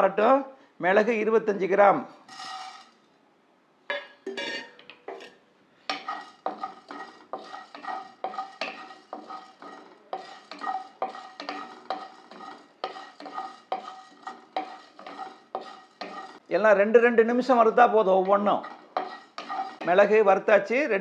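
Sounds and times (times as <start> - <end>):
spatula stirring in a pan: 2.3 - 3.0, 4.3 - 16.5, 17.4 - 20.2.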